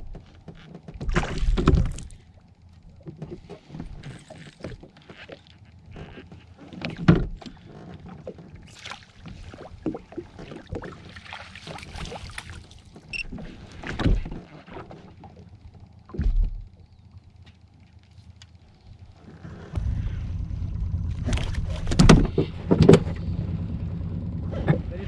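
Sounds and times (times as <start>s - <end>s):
water splashing: 8.3s - 14.2s.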